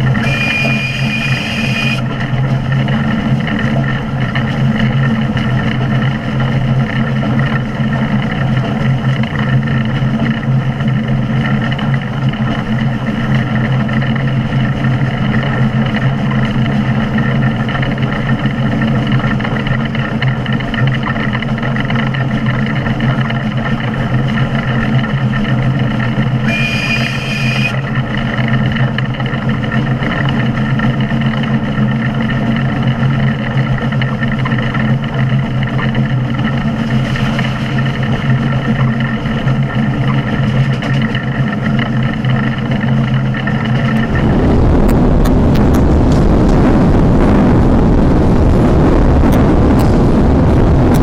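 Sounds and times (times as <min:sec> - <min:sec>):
locomotive mechanical hum: 0:00.0 - 0:51.0
steam whistle: 0:00.2 - 0:02.0, 0:26.5 - 0:27.8
wind and running noise: 0:27.7 - 0:51.0.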